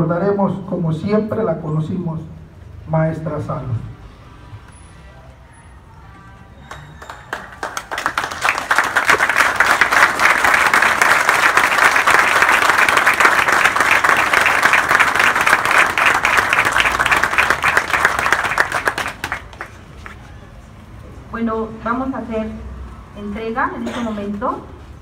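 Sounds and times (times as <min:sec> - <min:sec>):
crowd applauding: 0:06.6 - 0:20.3.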